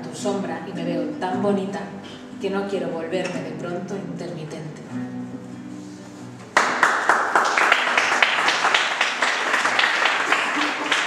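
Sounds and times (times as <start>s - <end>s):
acoustic guitar notes: 0.0s - 6.8s
audience applauding: 6.5s - 11.0s.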